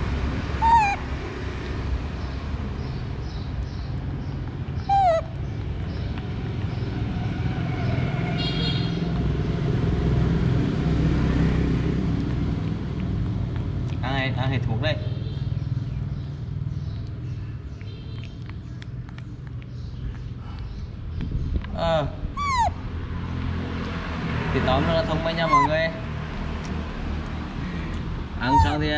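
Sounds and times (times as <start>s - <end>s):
young monkey crying: 0.4s - 1.3s, 4.8s - 5.4s, 22.2s - 22.9s, 25.0s - 26.1s, 28.4s - 28.9s.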